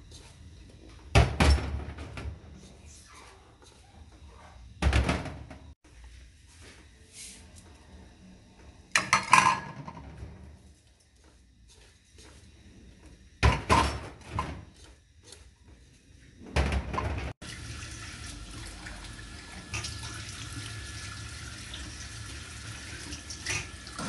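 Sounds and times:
water running into sink: 0:17.4 - 0:24.0.

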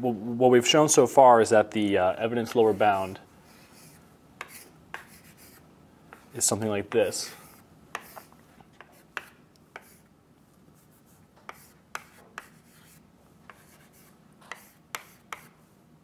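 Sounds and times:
chalk tapping and scratching: 0:02.5 - 0:10.1, 0:10.8 - 0:15.8.

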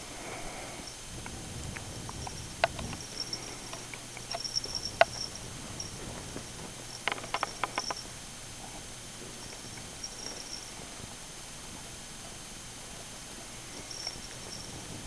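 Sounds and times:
kittens scuffling on a bedspread: 0:00.4 - 0:15.0
quick clicks: 0:07.0 - 0:08.1.

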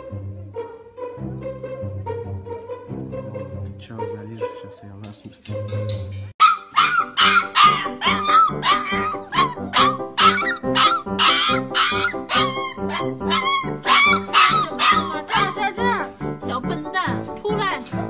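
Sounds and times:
background music: 0:00.0 - 0:18.0
puppy yipping and whining: 0:06.4 - 0:15.7.

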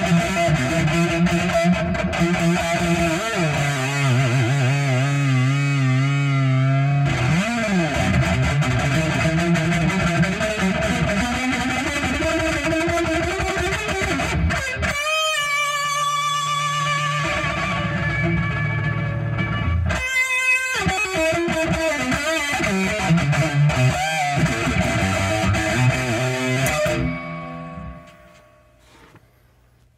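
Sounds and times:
electric guitar with vibrato: 0:00.0 - 0:29.2.

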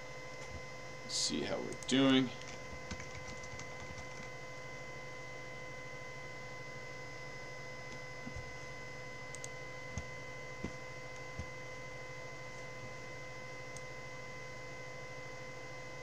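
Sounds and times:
electrical hum: 0:00.0 - 0:16.0.

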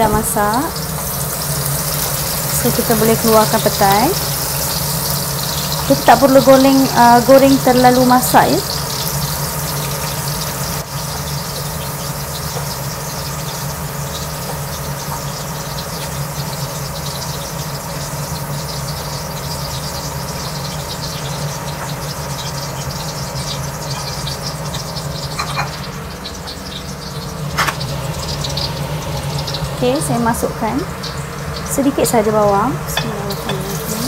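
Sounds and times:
beans sizzling in hot oil: 0:00.0 - 0:34.0
low hum: 0:27.2 - 0:34.0.

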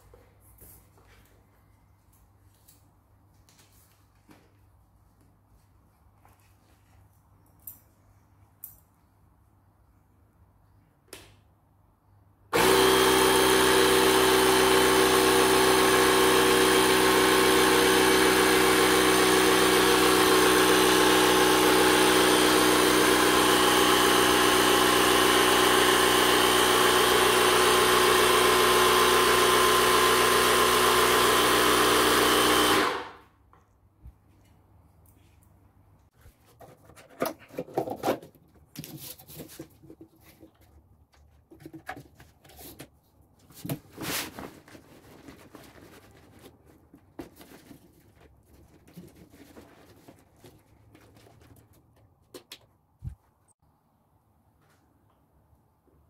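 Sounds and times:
cordless compressor running: 0:12.5 - 0:33.2.

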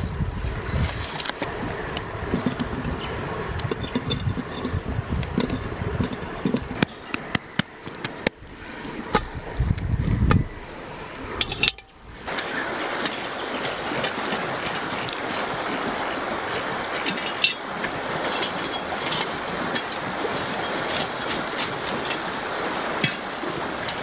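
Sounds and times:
wind on microphone: 0:00.0 - 0:24.0
clicks and taps on metal bowl: 0:03.7 - 0:07.7.

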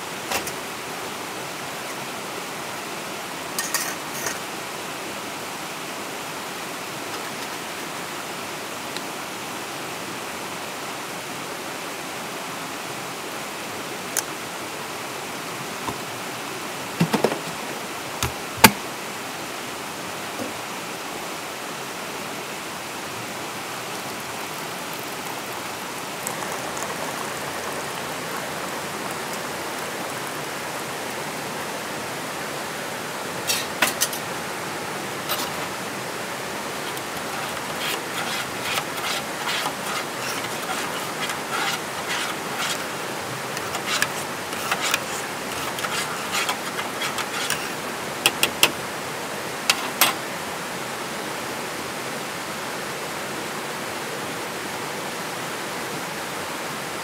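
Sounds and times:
stream rushing over rocks: 0:00.0 - 0:57.0
metal cookware clinking: 0:03.6 - 0:04.4, 0:33.5 - 0:34.2.

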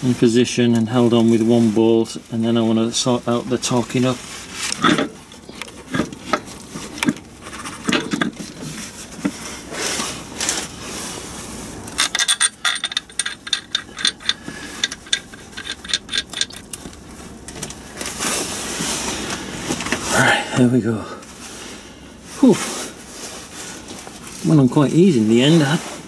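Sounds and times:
metal clinking and scraping: 0:03.6 - 0:10.8, 0:11.8 - 0:19.2.

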